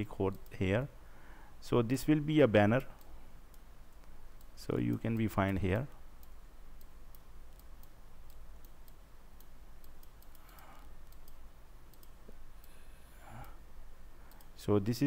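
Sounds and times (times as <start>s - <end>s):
low steady hum: 0.0s - 15.0s
computer mouse clicking: 6.2s - 13.6s, 14.2s - 14.6s.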